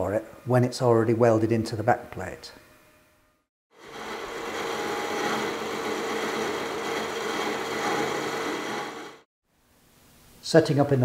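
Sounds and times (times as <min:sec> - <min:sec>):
metal lathe cutting steel: 0:03.8 - 0:09.3.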